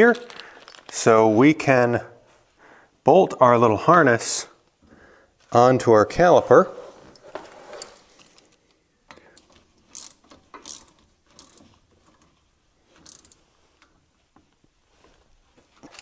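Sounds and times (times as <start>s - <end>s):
metal clicks and rattles of tool: 8.2s - 12.3s.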